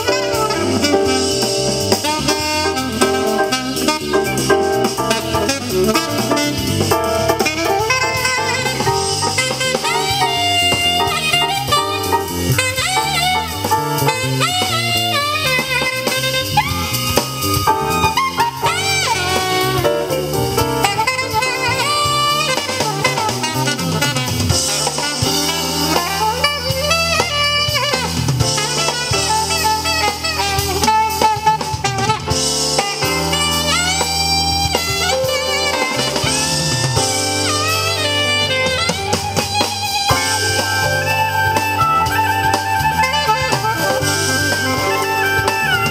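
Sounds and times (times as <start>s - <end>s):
drum beat: 0.0s - 45.9s
heavy bass: 0.0s - 45.9s
song with melodic lead: 0.0s - 45.9s.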